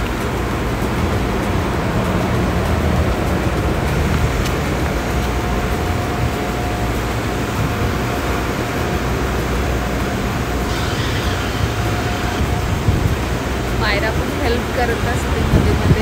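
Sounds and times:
vacuum suction motor running: 0.0s - 16.0s.

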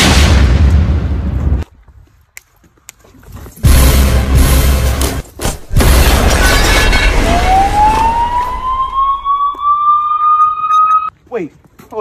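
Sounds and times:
siren tone rising in pitch: 7.1s - 11.1s.

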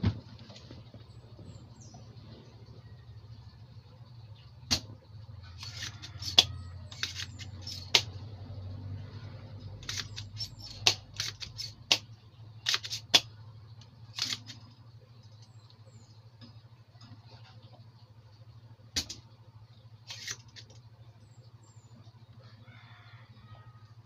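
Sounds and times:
steady low hum: 0.0s - 24.0s
desoldering pump snapping: 4.7s - 8.2s, 9.8s - 15.8s.

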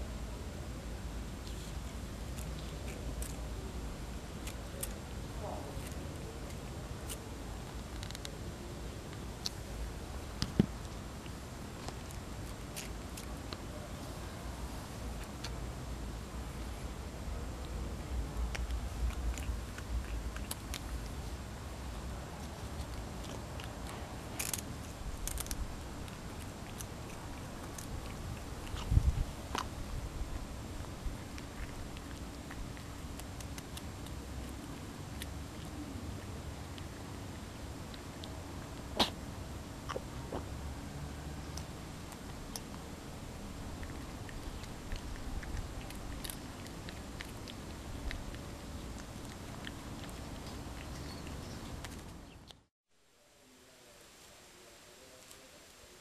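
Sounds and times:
cat crunching food: 1.5s - 14.1s, 16.4s - 40.5s, 41.2s - 52.3s.

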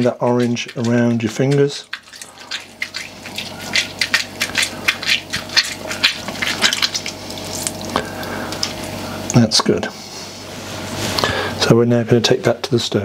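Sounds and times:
juice dripping into saucepan: 0.0s - 9.0s
orange pulp squelching: 0.0s - 9.3s.

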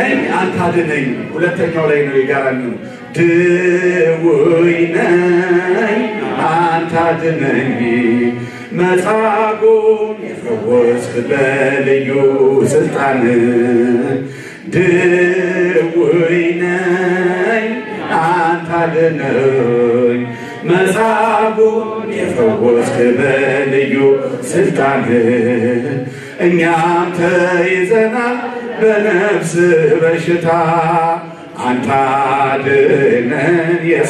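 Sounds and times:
man chanting a hymn: 0.0s - 34.0s.

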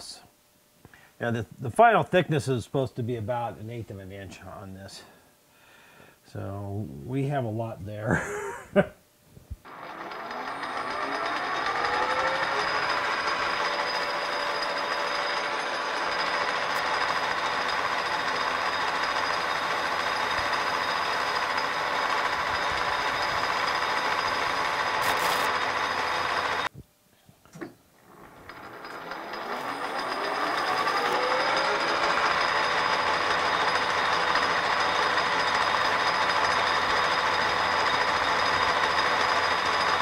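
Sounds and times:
lathe spindle whine: 9.7s - 26.7s, 28.0s - 40.0s
metal lathe cutting: 9.7s - 26.7s, 28.1s - 40.0s.

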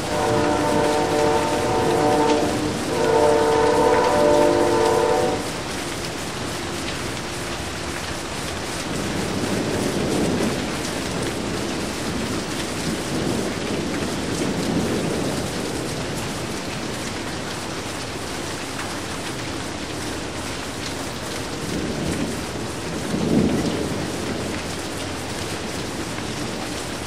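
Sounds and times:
thunder rumbling: 0.0s - 6.5s, 8.7s - 17.1s, 21.5s - 27.0s
rain falling steadily: 0.0s - 27.0s.

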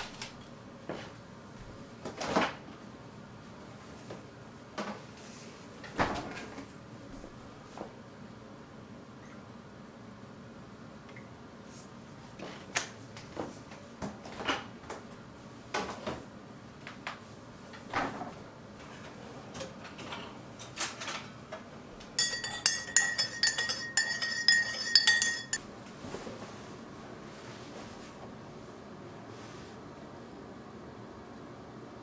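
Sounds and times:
spoon stirring in ceramic mug: 22.2s - 25.6s.

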